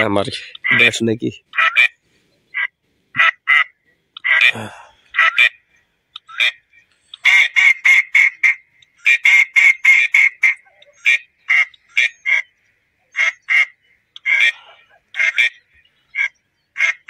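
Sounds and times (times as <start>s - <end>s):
duck quacking: 0.4s - 0.9s, 1.5s - 1.9s, 2.6s - 4.6s, 5.2s - 5.6s, 7.2s - 12.5s, 13.1s - 15.6s.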